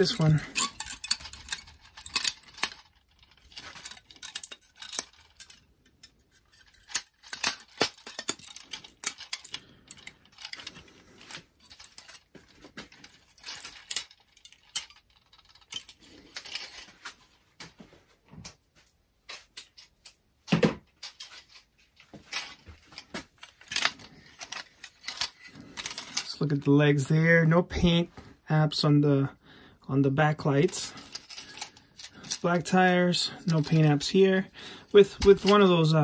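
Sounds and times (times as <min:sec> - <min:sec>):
plastic toy parts clicking: 0:00.0 - 0:16.9, 0:23.4 - 0:26.3, 0:30.7 - 0:34.2, 0:34.9 - 0:36.0.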